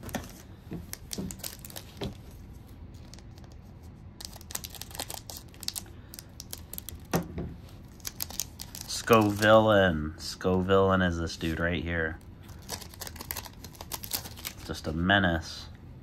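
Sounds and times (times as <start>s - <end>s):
foil wrapper crinkling: 0.0s - 2.3s, 2.9s - 3.6s, 4.2s - 7.1s, 7.8s - 9.7s, 12.5s - 14.8s.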